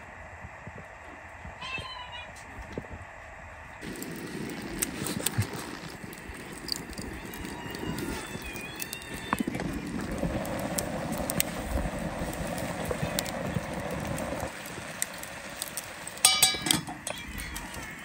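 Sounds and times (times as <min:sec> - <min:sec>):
wood fire crackling: 0:00.0 - 0:01.6, 0:02.4 - 0:18.0
loud ringing clatter: 0:16.2 - 0:17.2.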